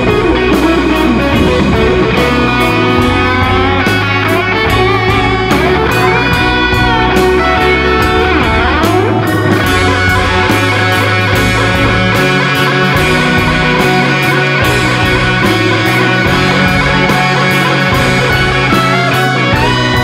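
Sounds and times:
electric guitar bending lead notes: 0.0s - 20.0s
rock music: 0.0s - 20.0s.

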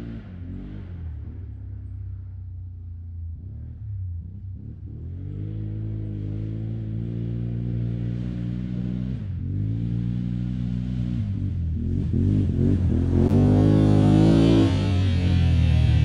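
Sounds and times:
quad engine revving: 4.4s - 16.0s.

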